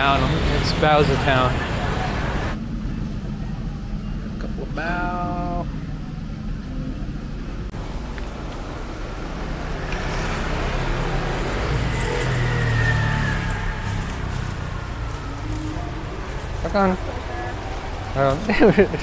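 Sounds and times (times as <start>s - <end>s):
street traffic: 0.0s - 19.0s
vehicle passing with whine: 0.0s - 19.0s.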